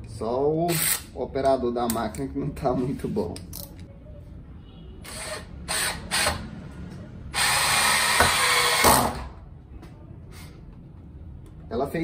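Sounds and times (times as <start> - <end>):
cordless drill driving screw: 5.1 - 6.4, 7.4 - 9.2.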